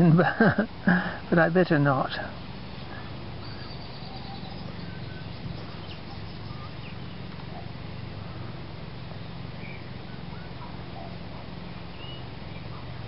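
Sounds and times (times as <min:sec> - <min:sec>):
steady low hum: 0:00.0 - 0:13.0
bird chirps and calls: 0:02.9 - 0:08.5, 0:09.6 - 0:11.2, 0:11.8 - 0:13.0.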